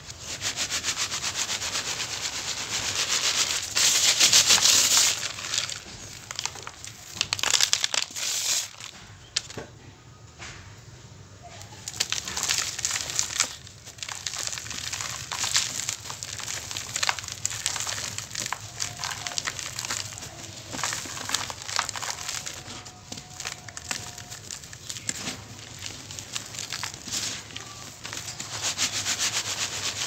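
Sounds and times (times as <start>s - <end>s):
grains sifting through colander: 0.0s - 8.9s, 11.8s - 30.0s
cement clumps crunching by hand: 2.4s - 9.6s, 11.6s - 30.0s.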